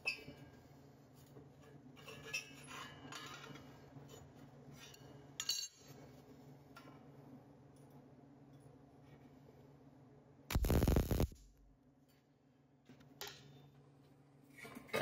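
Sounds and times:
low hum: 10.5s - 11.8s.

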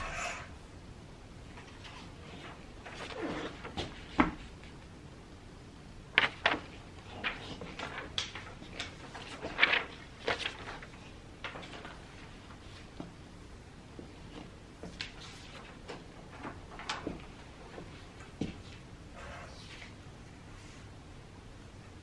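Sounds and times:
paper sheets rustling: 1.6s - 4.8s, 6.1s - 13.1s, 14.1s - 20.0s.

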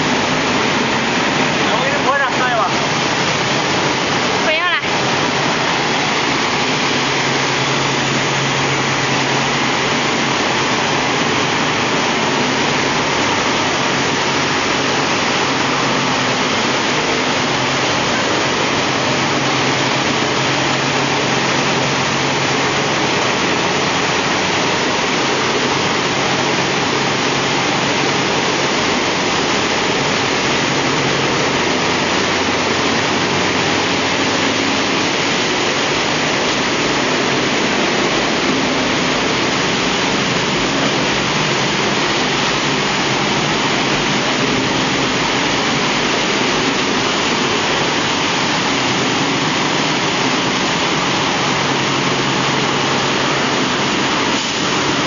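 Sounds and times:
industrial machine noise: 0.0s - 55.0s
low motor hum: 0.0s - 55.0s
rushing wash water: 0.0s - 55.0s.

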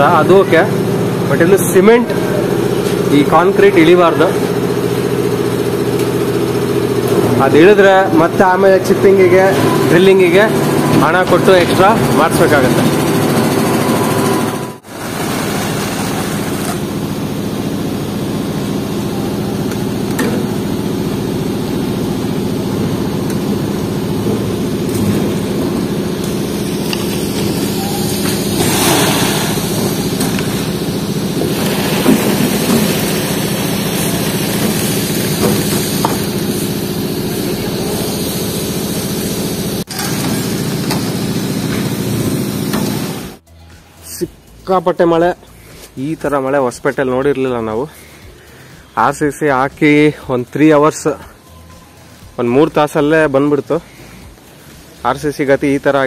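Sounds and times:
engine running: 0.0s - 44.6s.

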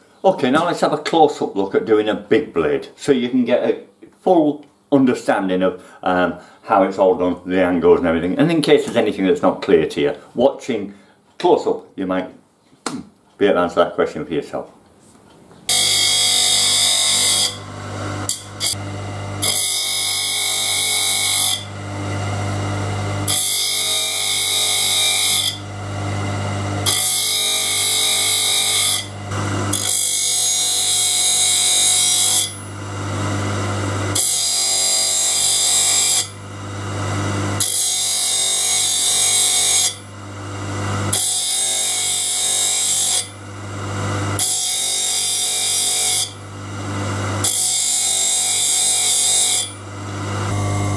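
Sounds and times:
motor hum: 15.7s - 30.1s, 46.4s - 47.5s, 49.8s - 50.9s
grinding wheel grinding saw teeth: 15.7s - 50.9s.

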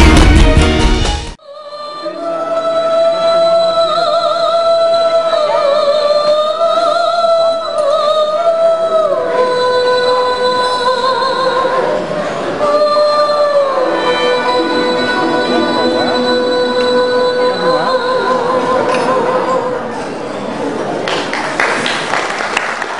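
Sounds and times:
woman singing with vibrato: 1.4s - 20.0s
plucked and bowed strings ensemble: 13.5s - 19.9s.

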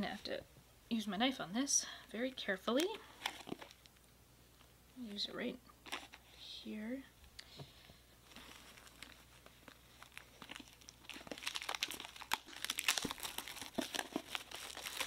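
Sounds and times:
shrink wrap tearing and crinkling: 8.3s - 15.0s.

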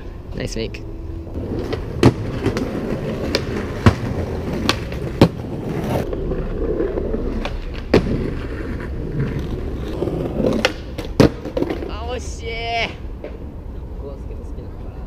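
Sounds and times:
skateboard wheels rolling on stone: 1.4s - 13.3s
skateboard clacking on ground: 1.4s - 13.4s.

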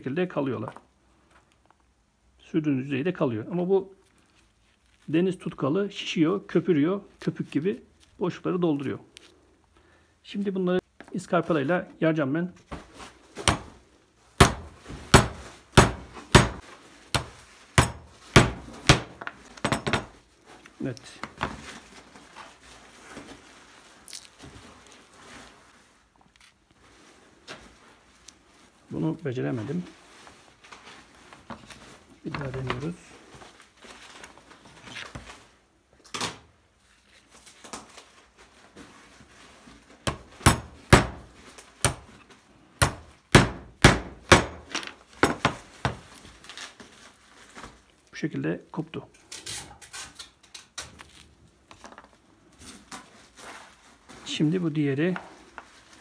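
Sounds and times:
hammer striking wood chisel: 13.4s - 13.7s, 14.4s - 16.6s, 17.2s - 20.1s, 40.1s - 42.2s, 42.8s - 45.6s.

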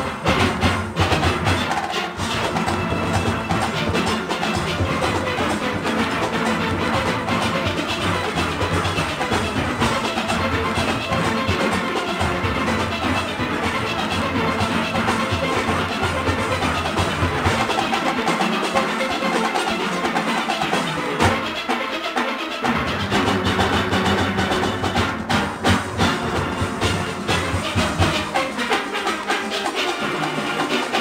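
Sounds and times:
steel orchestra playing: 0.0s - 31.0s.

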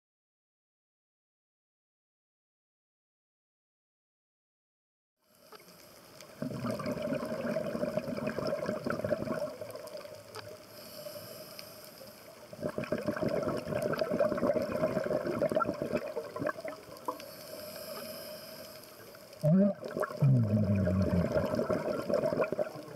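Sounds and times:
underwater regulator bubbling exhalation: 6.4s - 10.0s, 12.5s - 18.3s, 19.4s - 22.9s.

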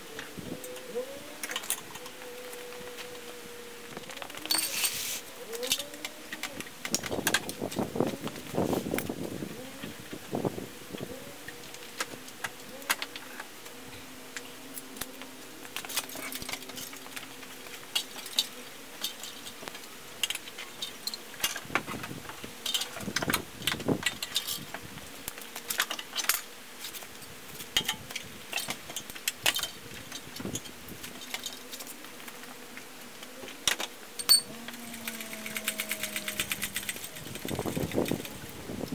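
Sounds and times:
faint steady hum: 0.0s - 38.9s.

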